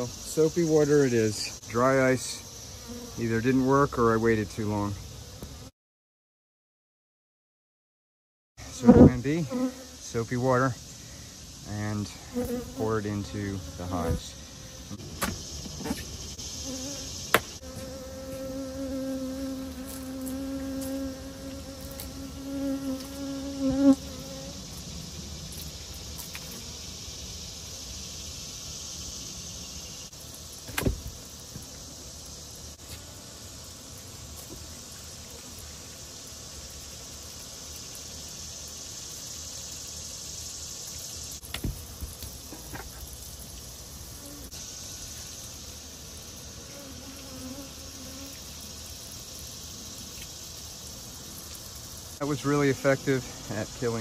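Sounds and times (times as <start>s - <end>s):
bees buzzing: 0.0s - 5.7s, 8.6s - 54.0s
sharp knocks: 30.7s - 31.1s.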